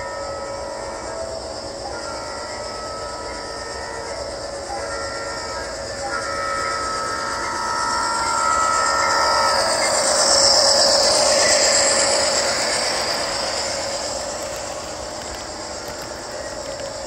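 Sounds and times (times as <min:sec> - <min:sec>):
model train horn chord: 0:00.0 - 0:10.6
model train rushing past: 0:00.0 - 0:17.0.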